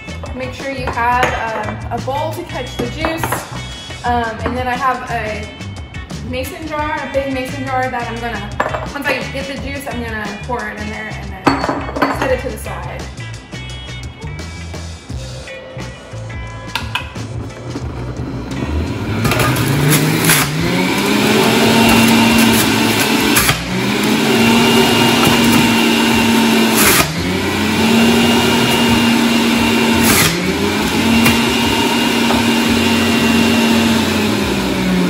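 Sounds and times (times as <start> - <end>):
juicer motor whining: 16.8 - 35.0
beet crunching in juicer: 18.3 - 35.0.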